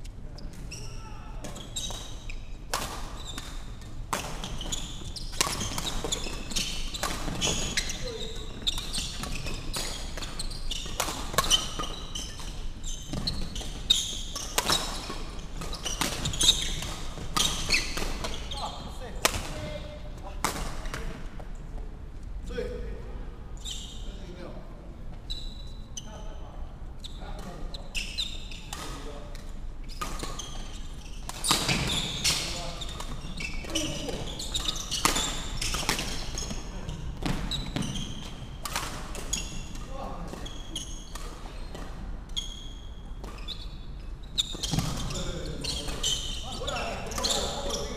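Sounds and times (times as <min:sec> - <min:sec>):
shoes squeaking on wooden floor: 0:00.3 - 0:02.6, 0:04.4 - 0:19.0, 0:25.1 - 0:26.3, 0:29.8 - 0:47.9
rackets hitting shuttlecock: 0:02.6 - 0:04.7, 0:05.3 - 0:18.5, 0:28.7 - 0:36.6
racket hitting shuttlecock: 0:02.7 - 0:03.5, 0:34.0 - 0:36.3.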